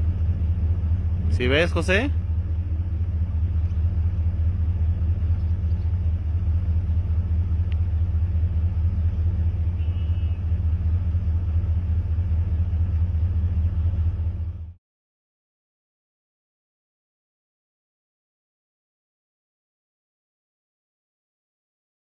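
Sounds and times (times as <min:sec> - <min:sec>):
loud low rumble: 0:00.0 - 0:14.8.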